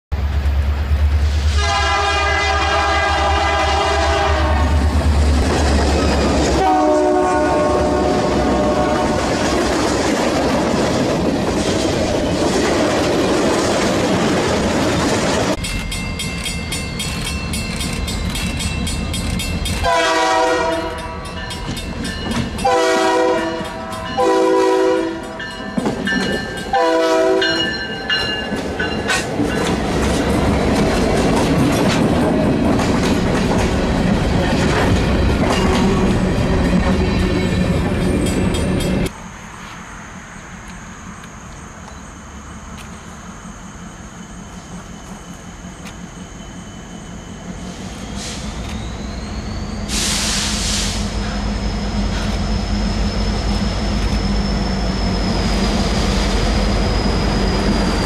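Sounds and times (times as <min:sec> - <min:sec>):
train rumbling on rails: 0:00.1 - 0:58.0
locomotive horn blasts: 0:01.5 - 0:04.9, 0:06.5 - 0:09.4, 0:19.8 - 0:21.3, 0:22.6 - 0:25.4, 0:26.7 - 0:27.8.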